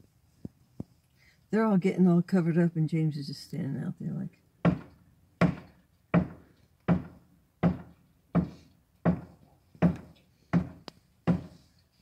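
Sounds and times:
hammer knocking on stucco wall: 0:04.6 - 0:11.6.

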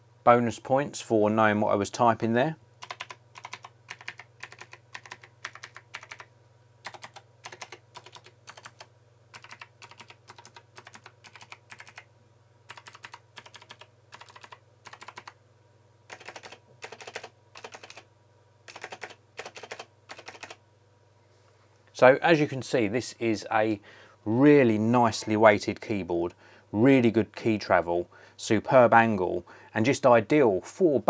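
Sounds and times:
clicky keyboard typing: 0:02.8 - 0:12.1, 0:12.7 - 0:15.4, 0:16.1 - 0:18.0, 0:18.7 - 0:20.6.

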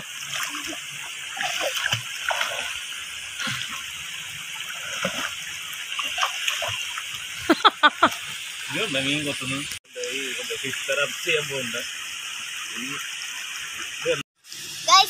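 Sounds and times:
child splashing in water: 0:00.0 - 0:02.8, 0:04.7 - 0:05.4, 0:06.0 - 0:07.0
stream water flowing: 0:00.0 - 0:14.2.

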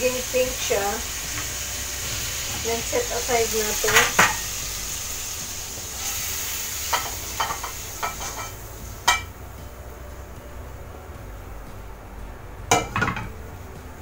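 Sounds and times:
shrimp sizzling in hot oil: 0:00.0 - 0:09.7
spatula scraping wok: 0:00.6 - 0:09.4
spatula knocking on wok and plate: 0:12.7 - 0:13.3.

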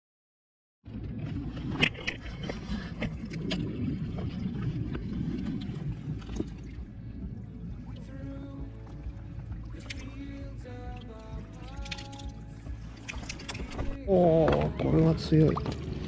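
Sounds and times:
low outdoor rumble: 0:00.8 - 0:16.0
keep net clicks and knocks: 0:11.6 - 0:12.4.

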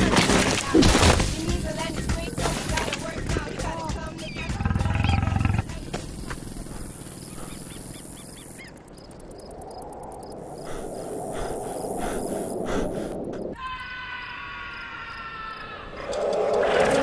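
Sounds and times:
faint chirps: 0:04.0 - 0:15.7
lion roaring: 0:04.6 - 0:05.7.

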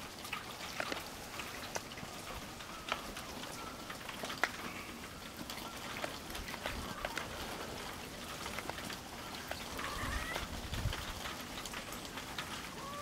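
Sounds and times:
dry grass crackling: 0:00.0 - 0:13.0
faint cat cries: 0:09.8 - 0:10.5, 0:12.8 - 0:13.0.

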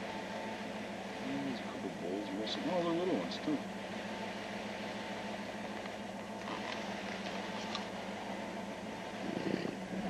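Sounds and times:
low mechanical hum with hiss: 0:00.0 - 0:10.0.

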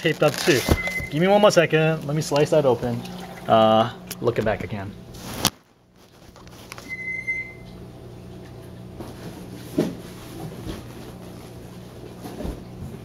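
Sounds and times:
steady low hum: 0:00.0 - 0:13.0
high squeak: 0:06.8 - 0:07.7.

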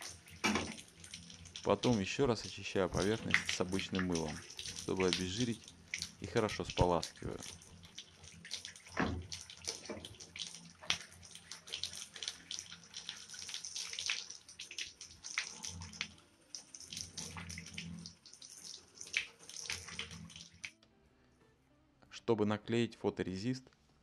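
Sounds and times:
water running from tap: 0:00.0 - 0:20.7
water splashing over hands: 0:02.8 - 0:20.7.

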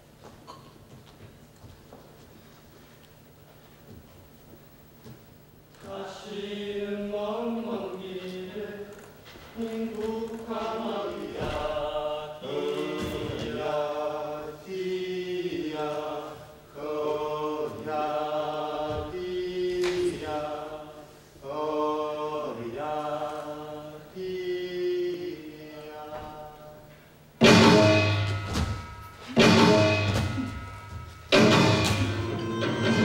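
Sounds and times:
choir chanting: 0:05.8 - 0:26.8, 0:27.4 - 0:33.0
sharp strike: 0:27.4 - 0:33.0.

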